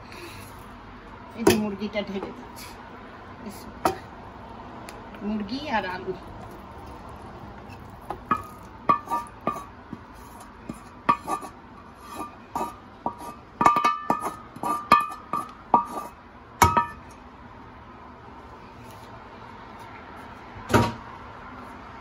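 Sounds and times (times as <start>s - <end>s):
spatula scraping metal pan: 8.3s - 16.2s.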